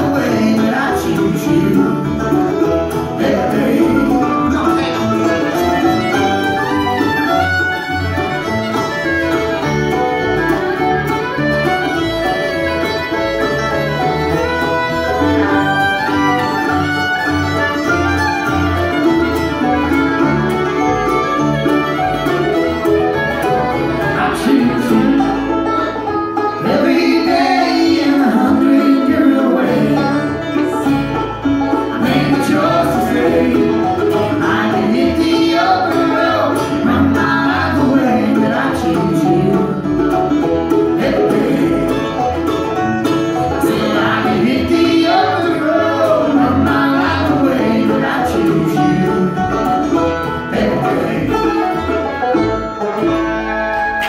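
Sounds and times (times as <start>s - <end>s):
person singing: 0.0s - 6.9s, 24.0s - 31.3s, 43.4s - 49.8s
acoustic guitar: 0.0s - 54.0s
banjo: 0.0s - 54.0s
fiddle: 0.0s - 54.0s
mandolin: 0.0s - 54.0s
upright bass: 0.0s - 54.0s.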